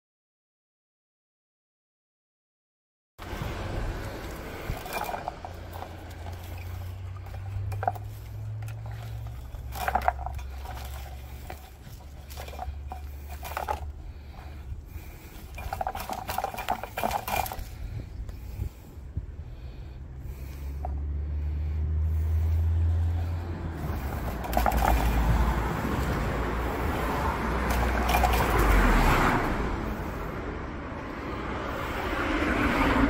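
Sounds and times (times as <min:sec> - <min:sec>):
olive rake clattering and clicking: 0:03.2 - 0:18.7, 0:23.8 - 0:29.3
branches rustling: 0:03.2 - 0:30.1.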